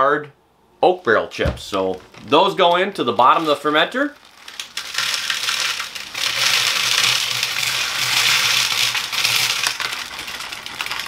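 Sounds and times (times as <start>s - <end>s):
wood chips rattling into container: 1.7s - 11.0s.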